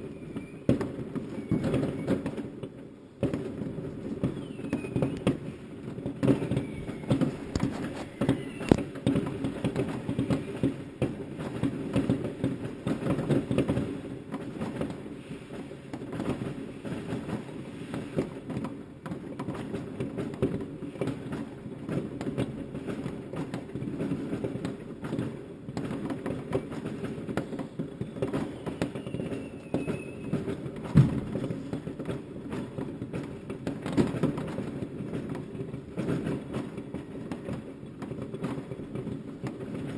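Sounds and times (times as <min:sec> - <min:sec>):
faint firework whistles: 0:00.0 - 0:02.6, 0:04.0 - 0:11.7, 0:26.4 - 0:31.9
distant fireworks bangs and crackles: 0:00.0 - 0:39.9
loud sharp firework bangs: 0:00.0 - 0:39.9.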